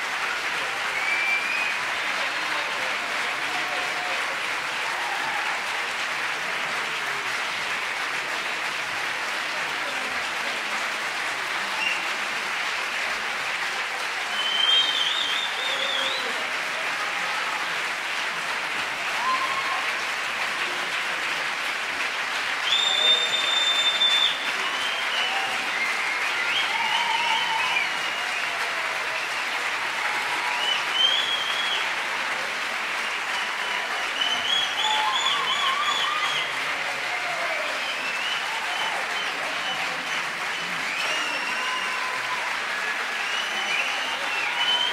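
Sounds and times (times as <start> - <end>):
cheering shouts: 0.0 - 8.8, 9.6 - 44.9
audience applauding: 0.0 - 44.9
shrill whistles: 1.0 - 1.9, 14.3 - 16.3, 22.6 - 28.6, 30.4 - 32.0, 33.4 - 36.6, 37.6 - 44.9.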